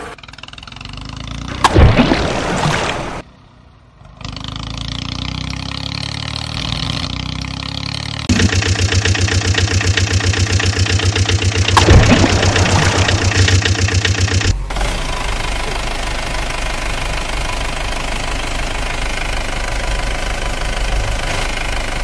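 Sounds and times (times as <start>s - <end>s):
water splashing: 1.6s - 3.3s, 11.7s - 13.8s
diesel engine running: 4.0s - 22.0s.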